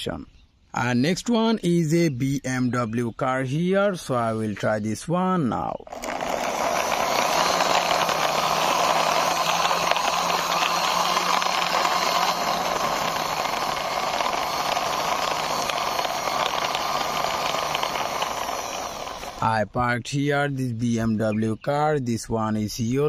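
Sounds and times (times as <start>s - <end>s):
toy car wheels rolling on cement: 5.7s - 19.6s.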